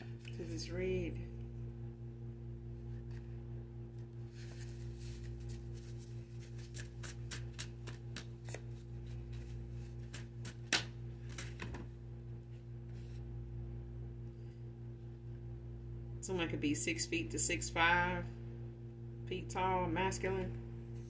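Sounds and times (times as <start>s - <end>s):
cards being shuffled: 4.3s - 11.9s.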